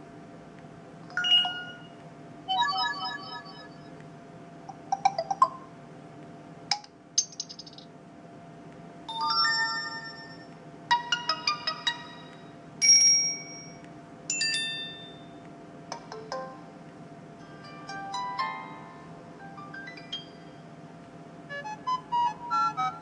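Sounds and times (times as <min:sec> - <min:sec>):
phone notification chimes: 0:01.2 - 0:01.9.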